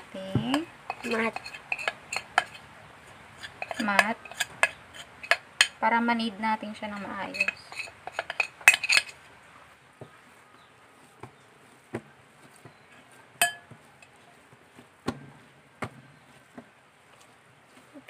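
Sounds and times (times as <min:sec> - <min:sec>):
hands kneading dough: 0:00.0 - 0:18.0
bowl scraping on baking mat: 0:00.4 - 0:05.9, 0:06.6 - 0:09.3.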